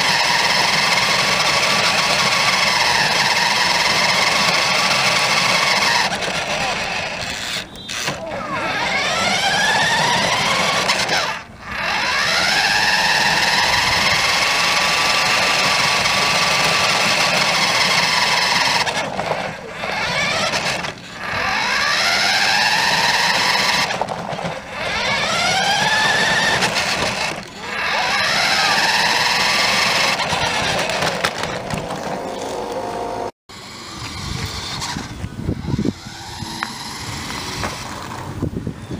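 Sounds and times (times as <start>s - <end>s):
toy truck motor whining: 0.0s - 38.9s.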